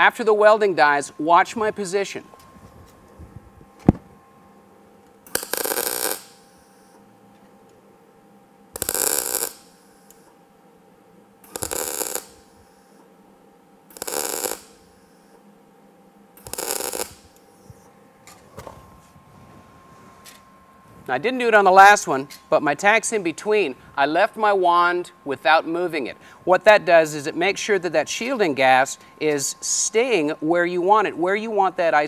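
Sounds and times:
welder crackling bursts: 0:05.2 - 0:06.7, 0:08.7 - 0:10.2, 0:11.4 - 0:12.9, 0:13.9 - 0:15.1, 0:16.4 - 0:17.5.

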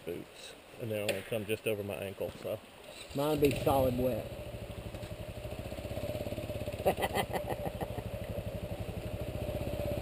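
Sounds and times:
motorcycle engine idling: 0:03.3 - 0:10.0.

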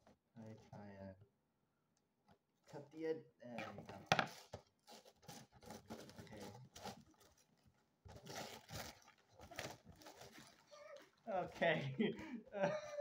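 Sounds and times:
wrapping paper ripping and rustling: 0:04.3 - 0:11.2.

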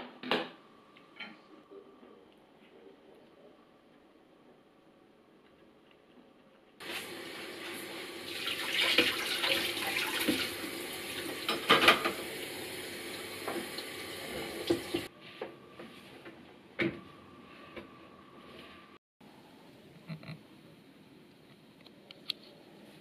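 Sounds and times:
tap water running into sink: 0:06.8 - 0:15.1
dishes clinking: 0:11.5 - 0:12.2.

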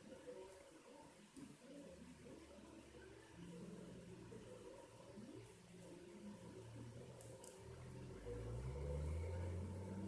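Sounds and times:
low background murmur: 0:00.0 - 0:10.0.

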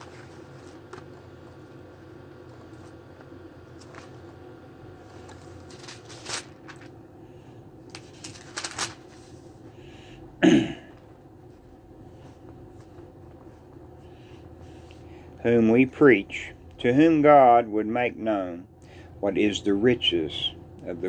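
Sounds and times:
book pages rustling: 0:00.0 - 0:01.7, 0:02.5 - 0:04.4, 0:05.0 - 0:07.0, 0:07.9 - 0:09.6
crisp page flicks: 0:05.2 - 0:06.9, 0:07.9 - 0:09.2.

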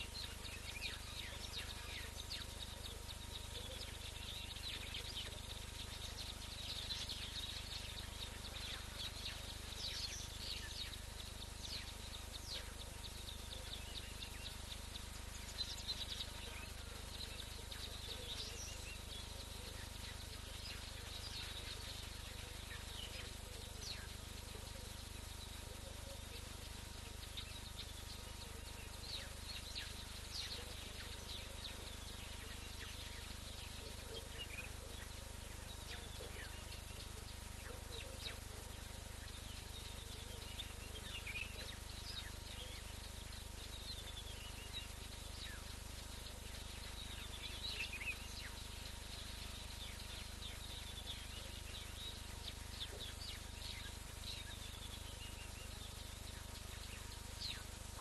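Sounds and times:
faint steady tone: 0:00.0 - 0:58.0
low microphone hum: 0:00.0 - 0:58.0
steady hiss: 0:00.0 - 0:58.0.

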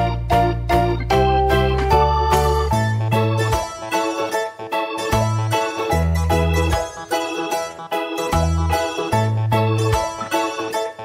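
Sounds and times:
held bass line: 0:00.0 - 0:04.1, 0:05.1 - 0:07.1, 0:08.2 - 0:10.5
keyboard melody: 0:00.0 - 0:11.0.

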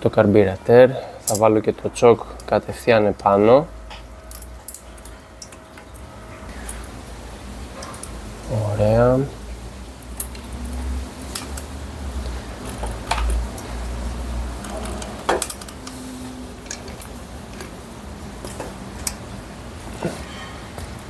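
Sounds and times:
metal parts clicking and tapping: 0:03.9 - 0:06.0, 0:10.1 - 0:13.8, 0:14.5 - 0:16.0, 0:16.6 - 0:17.8, 0:18.4 - 0:19.2.

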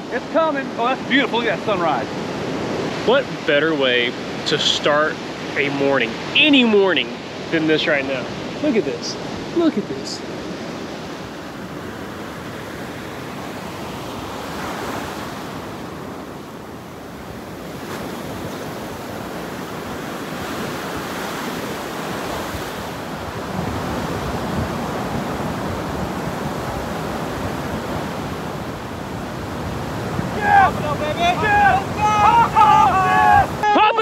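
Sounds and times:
waves breaking on sand: 0:00.0 - 0:34.0
wind buffeting microphone: 0:09.2 - 0:33.7.

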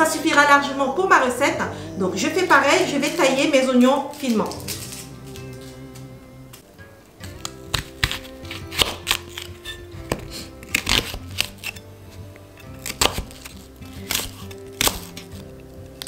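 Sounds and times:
background music: 0:00.0 - 0:16.0
knife cutting onion on board: 0:07.3 - 0:16.0.

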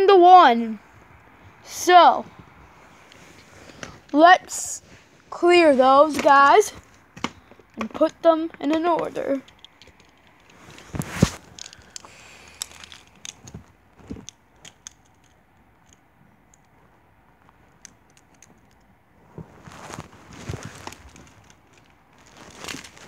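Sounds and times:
plastic toy figures clicking: 0:07.3 - 0:10.6, 0:11.5 - 0:16.7, 0:17.8 - 0:18.9
rustling handling: 0:08.8 - 0:23.0.

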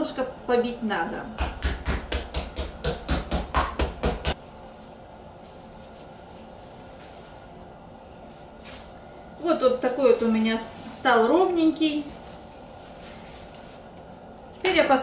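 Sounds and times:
meat mallet pounding: 0:01.4 - 0:04.4.

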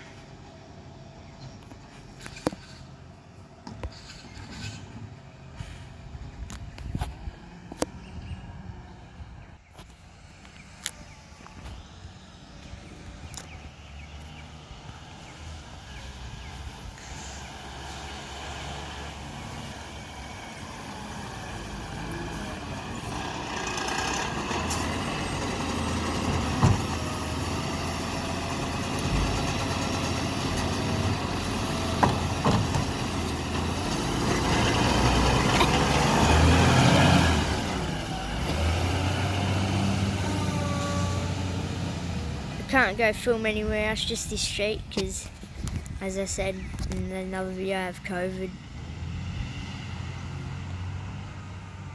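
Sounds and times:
garbage truck diesel engine: 0:11.0 - 0:45.4
hydraulics whining: 0:14.8 - 0:42.7.

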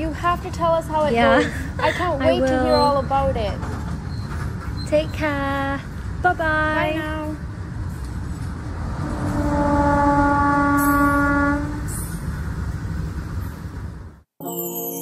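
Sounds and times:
train rumbling: 0:00.0 - 0:14.3
train horn blast: 0:08.9 - 0:12.0.

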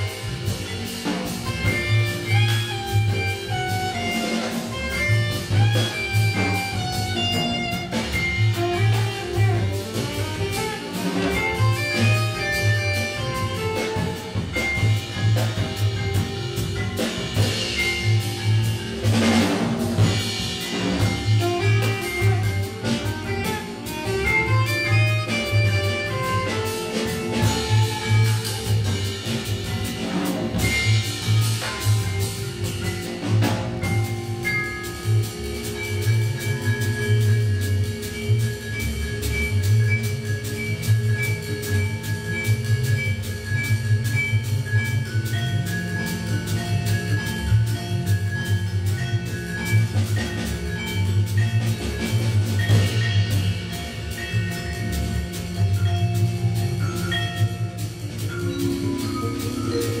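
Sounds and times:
drum kit with cymbals: 0:00.0 - 1:00.0
upright bass: 0:00.0 - 1:00.0
vibraphone notes: 0:00.0 - 1:00.0
saxophone: 0:01.3 - 0:16.1, 0:21.0 - 0:29.9.

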